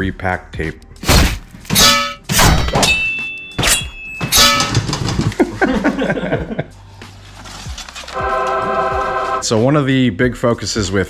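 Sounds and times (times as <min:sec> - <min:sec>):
cardboard rustling and scraping: 0:07.1 - 0:09.1.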